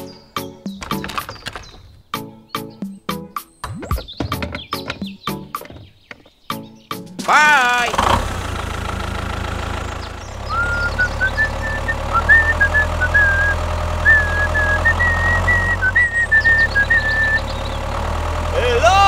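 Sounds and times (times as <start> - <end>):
tractor engine knocking hum: 7.2 - 19.0.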